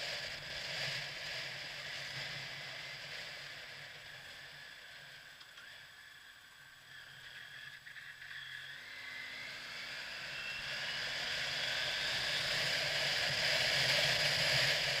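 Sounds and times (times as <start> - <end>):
motorcycle engine accelerating: 6.9 - 15.0.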